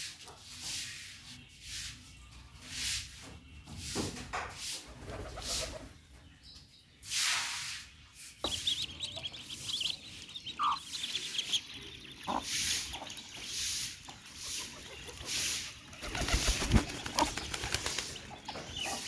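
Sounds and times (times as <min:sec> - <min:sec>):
ducklings peeping: 0:08.2 - 0:19.0
ducklings pecking feed: 0:08.4 - 0:19.0.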